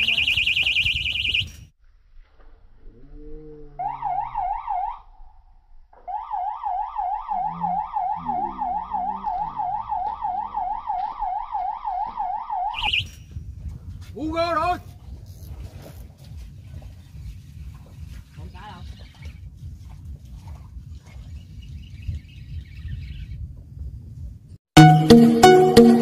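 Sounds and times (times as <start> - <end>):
fishing bite alarm warbling: 0.0 - 1.7, 3.4 - 13.4.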